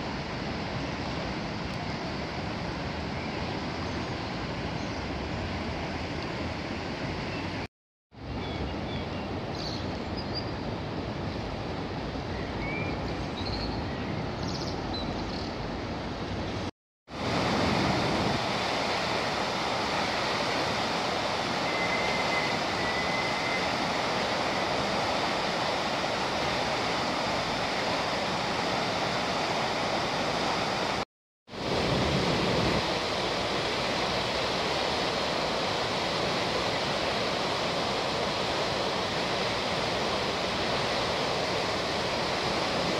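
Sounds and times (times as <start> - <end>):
rushing floodwater: 0.0 - 7.7, 15.7 - 42.9.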